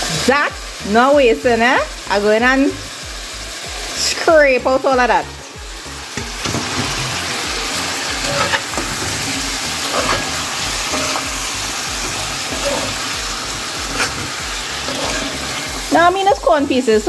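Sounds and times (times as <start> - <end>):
corn sizzling in oil: 0.0 - 17.0
metal spoon scraping pot: 8.2 - 11.4, 12.0 - 13.2, 13.8 - 15.8.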